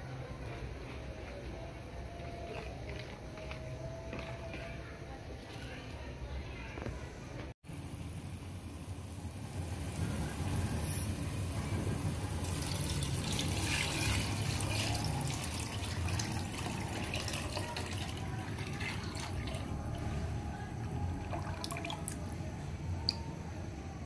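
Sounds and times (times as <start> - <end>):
batter pouring and splashing: 12.3 - 20.0.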